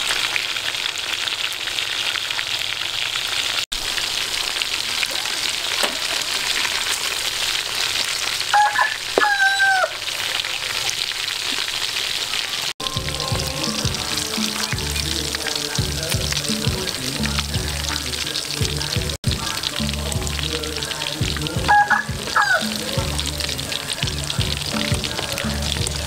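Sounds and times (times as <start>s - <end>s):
hot oil sizzling: 0.0s - 26.0s
background music with low notes: 12.8s - 26.0s.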